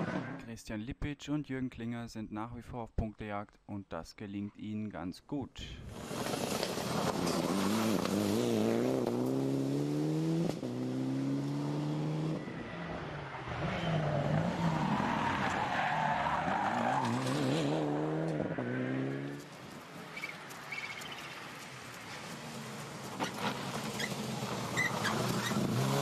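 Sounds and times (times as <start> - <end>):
rally car engine revving: 6.0 - 15.6, 16.2 - 19.5, 22.5 - 26.0.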